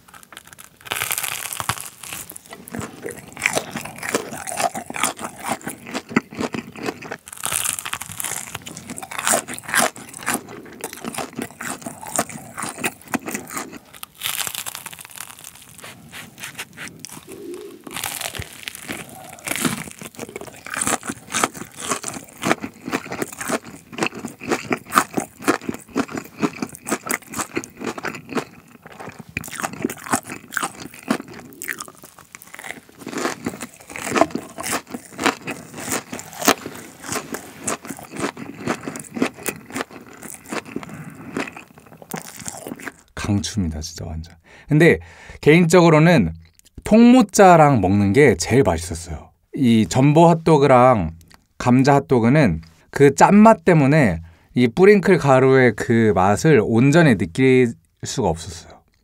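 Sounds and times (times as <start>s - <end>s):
crunching of crispy batter: 0.0s - 43.4s.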